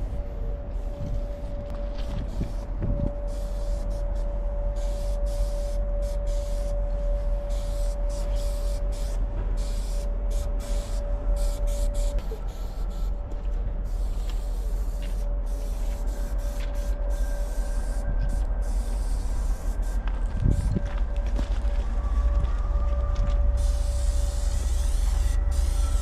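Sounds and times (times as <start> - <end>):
low rumble: 0.0 - 26.0
thin constant hum: 0.0 - 26.0
spray-paint can hissing: 3.3 - 4.2, 4.8 - 6.7, 7.5 - 13.1, 13.9 - 20.7, 23.6 - 26.0.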